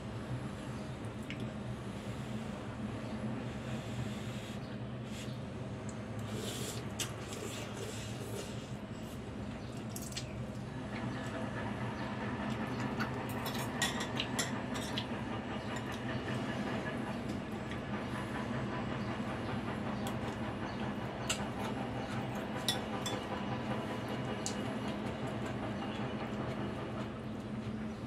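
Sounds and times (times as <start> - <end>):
steady low hum: 0.0 - 28.0
noodles slurped: 6.2 - 8.8.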